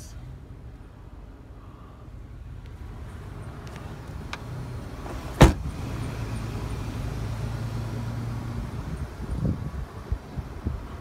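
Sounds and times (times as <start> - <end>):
car door slamming: 5.0 - 5.8
car door click: 5.4 - 5.6.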